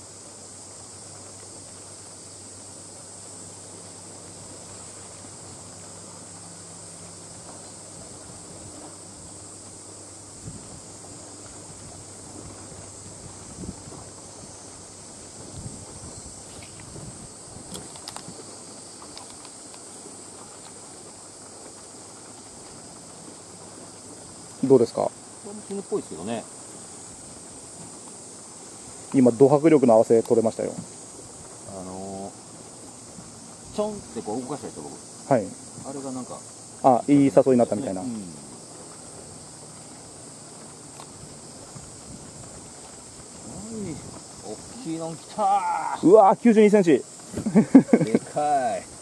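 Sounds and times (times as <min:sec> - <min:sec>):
high-pitched hiss: 0:00.0 - 0:49.0
high-pitched insect chorus: 0:00.0 - 0:49.0
faint sharp clicks: 0:19.0 - 0:19.8.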